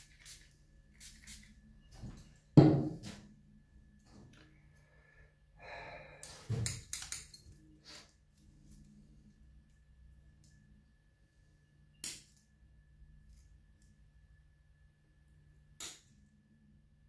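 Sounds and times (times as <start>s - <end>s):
object knocking on table: 2.6s - 3.1s.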